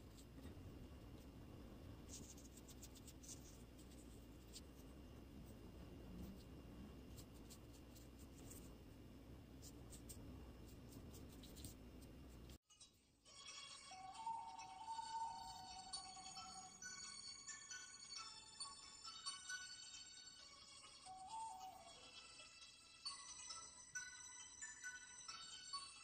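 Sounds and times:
low hum: 0:00.0 - 0:12.6
brush scratching on paper: 0:02.0 - 0:05.0, 0:07.1 - 0:08.8, 0:09.6 - 0:12.6.

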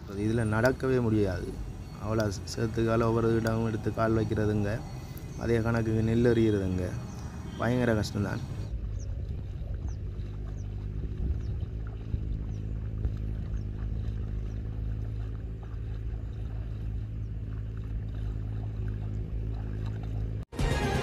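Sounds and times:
engine running steadily: 0:00.0 - 0:21.0
loud music: 0:20.5 - 0:21.0.

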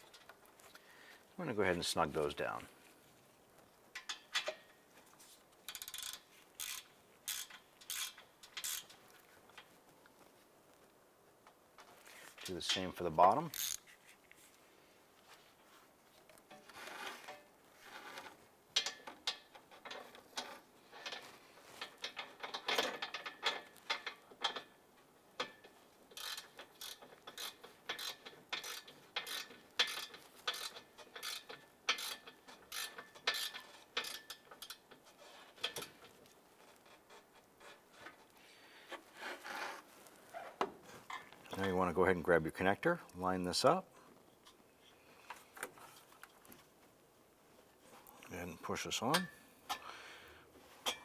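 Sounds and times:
socket ratchet clicking: 0:05.7 - 0:08.9, 0:13.6 - 0:13.8.

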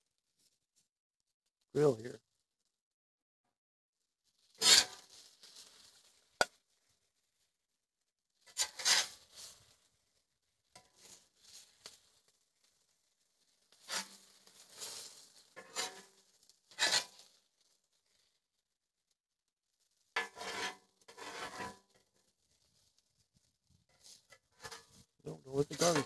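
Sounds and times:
metal spatula scraping griddle: 0:04.6 - 0:05.1, 0:08.5 - 0:09.5, 0:13.7 - 0:17.3, 0:20.2 - 0:22.0.

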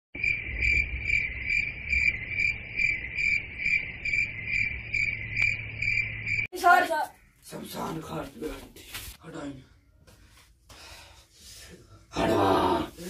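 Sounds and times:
crickets chirping: 0:00.2 - 0:07.4.

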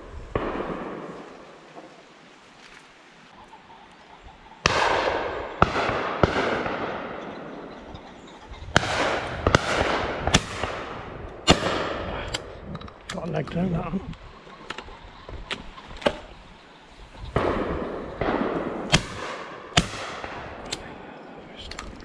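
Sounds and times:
shotgun shots with echo: 0:04.6 - 0:07.6, 0:08.8 - 0:12.2, 0:17.4 - 0:20.6.

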